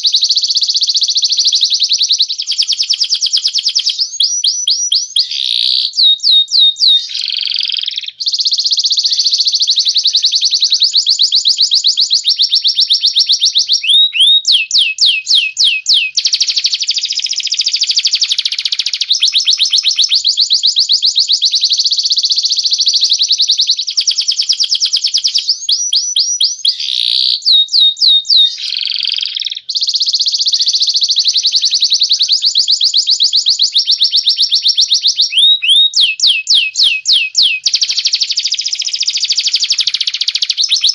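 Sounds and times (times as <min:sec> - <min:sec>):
canary singing trills: 0:00.0 - 0:40.9
jay whistling: 0:31.2 - 0:40.9.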